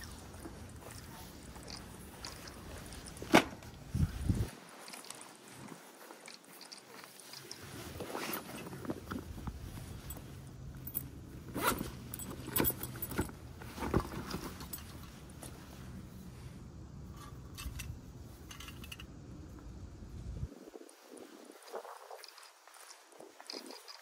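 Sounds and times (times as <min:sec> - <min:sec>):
fabric rustling: 0:00.1 - 0:16.4
zip: 0:06.4 - 0:08.8, 0:11.4 - 0:13.1
metallic clinks of flask: 0:10.0 - 0:13.4.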